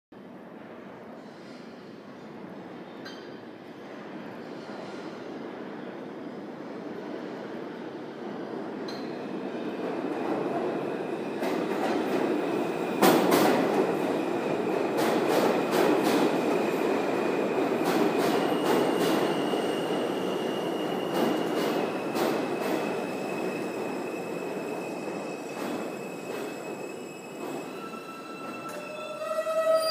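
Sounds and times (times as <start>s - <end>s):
train wheels rumbling and clacking: 8.8s - 29.8s
high wheel squeal: 22.7s - 29.9s.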